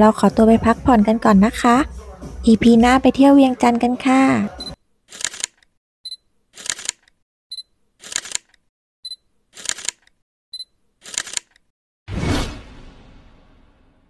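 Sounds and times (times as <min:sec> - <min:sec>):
camera focus beep: 0:04.6 - 0:05.5, 0:10.6 - 0:11.3
camera shutter click: 0:05.1 - 0:05.6, 0:06.6 - 0:07.1, 0:08.0 - 0:08.5, 0:09.6 - 0:10.0, 0:11.0 - 0:11.6
loud hit: 0:12.1 - 0:14.0.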